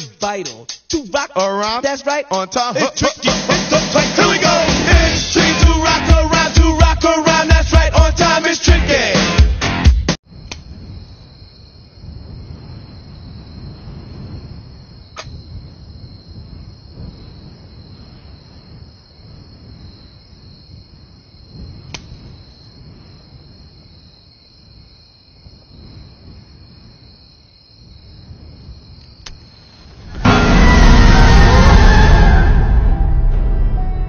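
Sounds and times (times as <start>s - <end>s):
faint clicks: 29.0s - 29.4s
low rumble: 29.9s - 34.0s
steady high-pitched tone: 30.0s - 34.0s.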